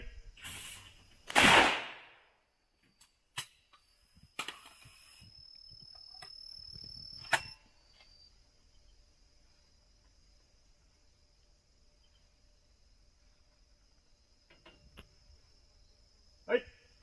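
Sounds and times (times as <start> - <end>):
shotgun shot: 1.3 - 2.2.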